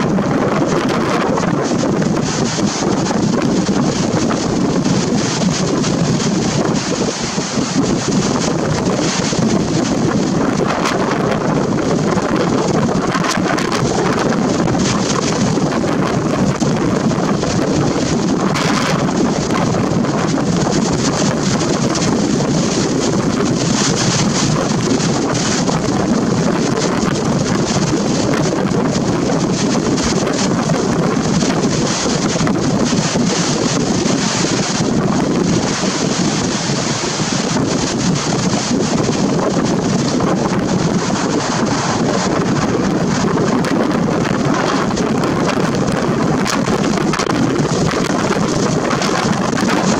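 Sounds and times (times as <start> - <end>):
wind buffeting microphone: 0.0 - 49.9.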